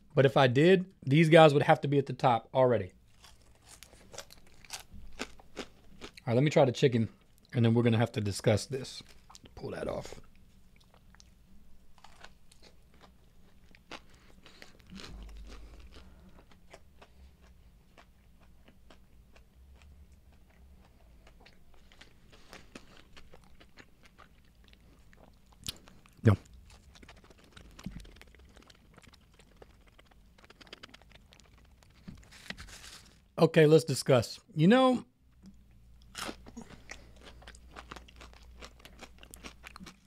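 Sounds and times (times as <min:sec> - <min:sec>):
chewing and crunching fried chicken: 0:03.0 - 0:07.6, 0:08.6 - 0:33.4, 0:35.4 - 0:40.0
small crackles: 0:25.6 - 0:33.3.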